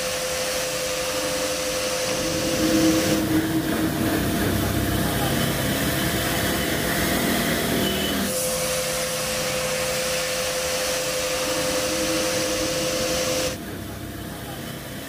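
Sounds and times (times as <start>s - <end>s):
motor hissing and whining: 0.0s - 15.0s
low rumble: 0.8s - 7.8s, 10.9s - 14.3s.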